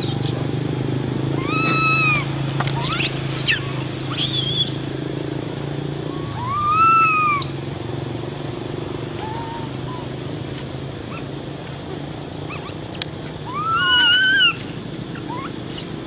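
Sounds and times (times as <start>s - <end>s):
baby monkey crying: 1.4s - 4.8s, 6.0s - 7.6s, 9.2s - 10.2s, 12.4s - 15.9s.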